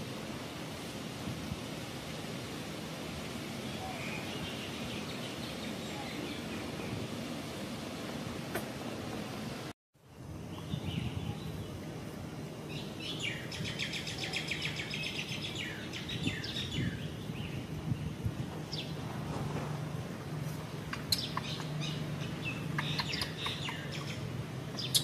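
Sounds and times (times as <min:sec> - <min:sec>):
bird chirping in rapid trill: 0:20.9 - 0:24.2.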